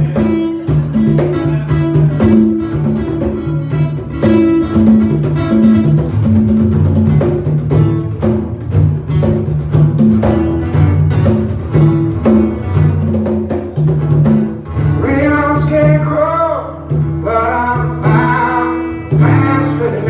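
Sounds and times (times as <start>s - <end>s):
acoustic guitars strumming: 0.0s - 20.0s
congas: 0.0s - 20.0s
man singing: 14.9s - 20.0s.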